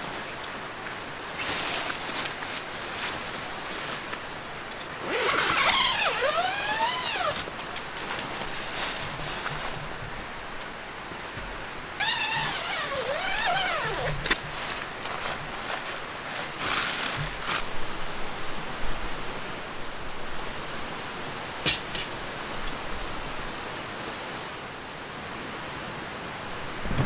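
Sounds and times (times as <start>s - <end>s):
rustles and clicks of gear: 0.0s - 17.7s
steady hiss: 0.0s - 27.0s.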